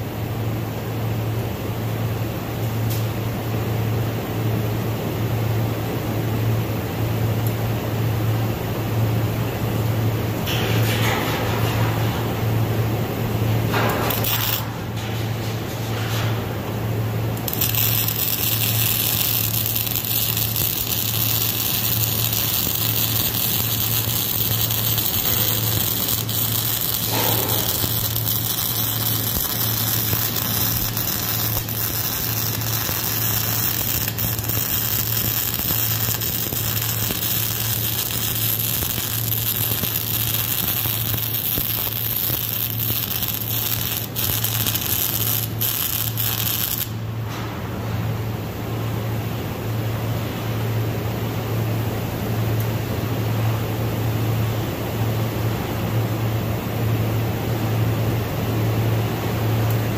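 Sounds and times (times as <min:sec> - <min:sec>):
steady low hum: 0:00.0 - 0:59.9
welding arc crackling hiss: 0:10.4 - 0:47.2.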